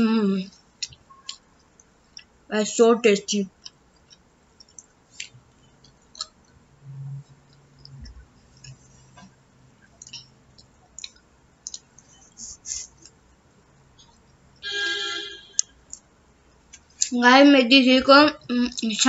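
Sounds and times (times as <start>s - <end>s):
chewing clicks: 3.6s - 6.6s, 9.9s - 12.1s.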